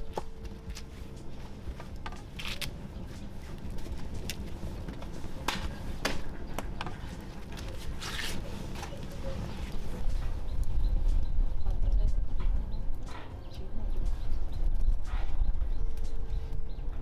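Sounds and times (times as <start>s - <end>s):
campfire crackling and popping: 0.0s - 13.1s.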